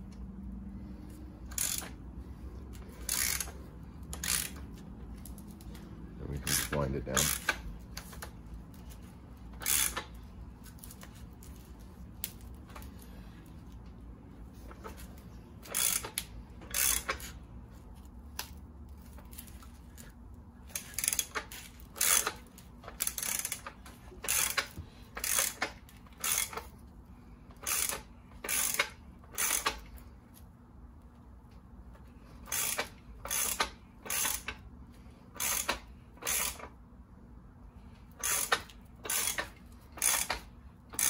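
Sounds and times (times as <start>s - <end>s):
hand ratchet clicking: 1.4s - 2.0s, 2.6s - 13.1s, 14.7s - 17.4s, 20.6s - 26.8s, 27.5s - 30.1s, 32.4s - 34.7s, 35.3s - 36.8s, 38.1s - 41.0s.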